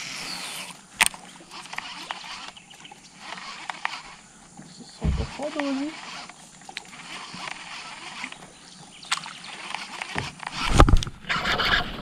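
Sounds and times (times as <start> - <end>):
handling thumps in a boat: 4.6 - 5.6.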